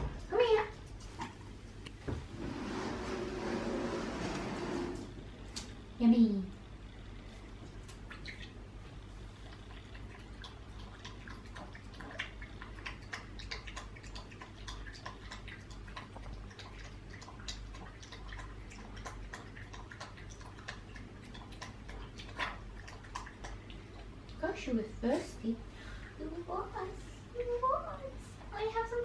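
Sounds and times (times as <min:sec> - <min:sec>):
puppy lapping water from metal bowl: 0:09.5 - 0:24.7.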